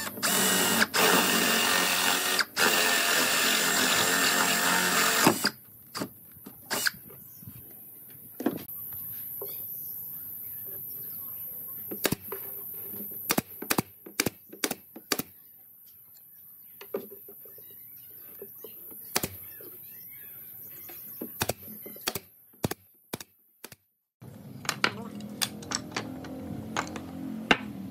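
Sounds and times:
nail gun shots into wood: 0:13.3 - 0:15.3.

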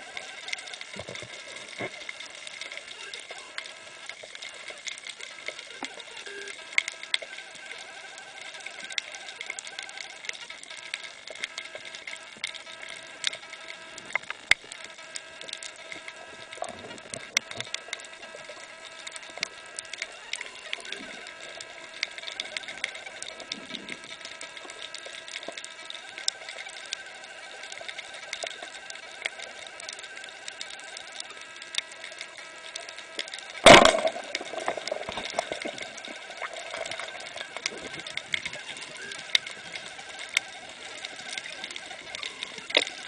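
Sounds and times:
faint steady hum: 0:00.0 - 0:43.0
underwater clicks crackling: 0:00.0 - 0:43.0
speargun firing bang: 0:33.7 - 0:34.2.

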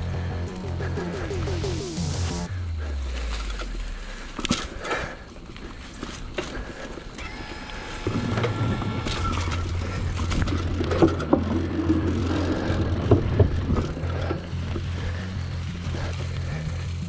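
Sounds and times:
bike tyres rumbling on dirt: 0:02.5 - 0:07.2, 0:09.2 - 0:17.0
bike rattling over bumps: 0:02.8 - 0:07.2, 0:09.0 - 0:17.0.

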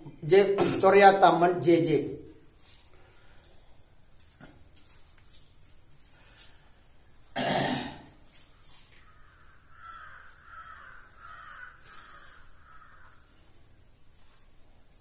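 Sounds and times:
loud harsh cough: 0:00.5 - 0:01.0, 0:07.4 - 0:08.1
faint harsh bird calls: 0:08.2 - 0:13.7.

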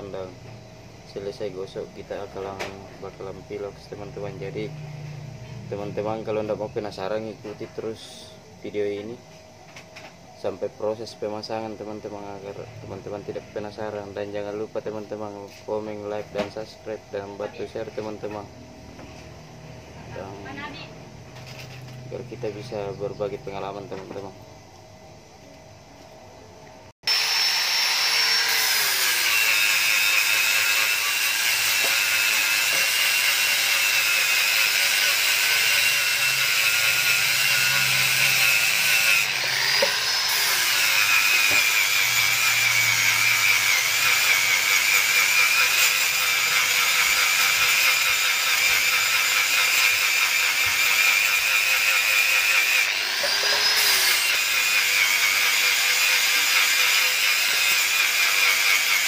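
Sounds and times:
angle grinder grinding metal: 0:21.4 - 0:22.9, 0:27.0 - 0:59.0.

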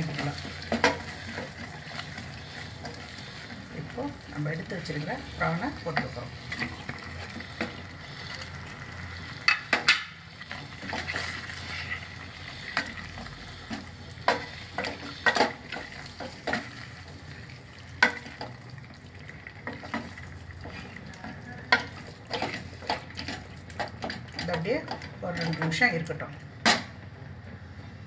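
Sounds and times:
wooden spatula scraping a pot: 0:00.0 - 0:04.0, 0:10.5 - 0:16.9
prawns sizzling in a pot: 0:00.0 - 0:26.0.

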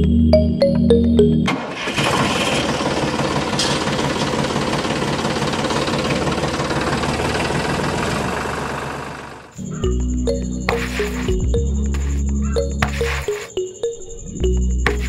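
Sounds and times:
music: 0:00.0 - 0:01.5, 0:09.6 - 0:15.0
tractor engine knocking: 0:01.5 - 0:10.0.

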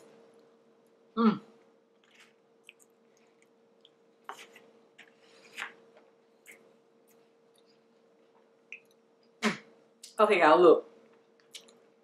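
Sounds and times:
faint steady hum: 0:00.0 - 0:12.0
person chewing: 0:01.9 - 0:05.8.

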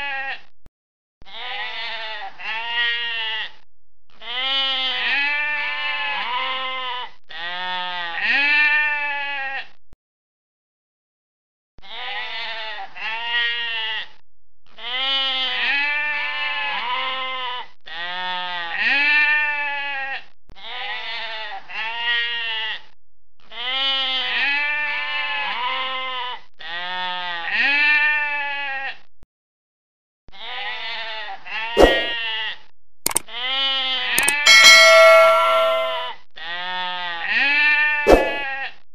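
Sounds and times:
sheep and lambs bleating: 0:00.0 - 0:00.4, 0:01.3 - 0:03.5, 0:04.2 - 0:09.7, 0:11.8 - 0:14.1, 0:14.8 - 0:22.8, 0:23.5 - 0:29.0, 0:30.3 - 0:32.6
sharp clicks: 0:34.2 - 0:34.5
bell-like ding: 0:34.2 - 0:36.1.

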